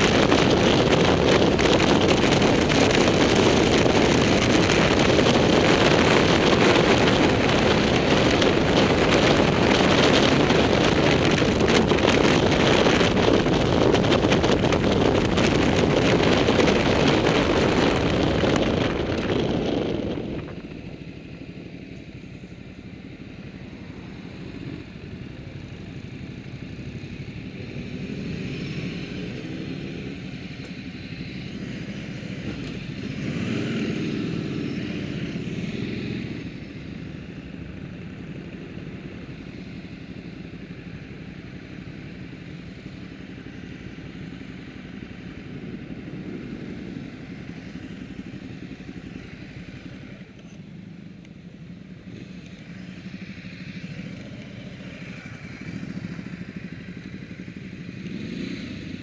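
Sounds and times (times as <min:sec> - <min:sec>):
wind rush on microphone: 0:00.0 - 0:21.2
motorcycle engine: 0:00.0 - 0:59.0.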